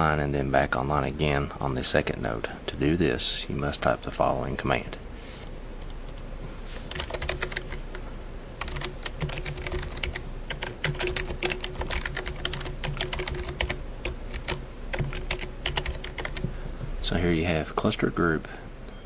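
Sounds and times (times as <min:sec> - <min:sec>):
faint steady hum: 0:00.0 - 0:19.0
typing on a keyboard: 0:06.9 - 0:07.8, 0:08.6 - 0:16.5.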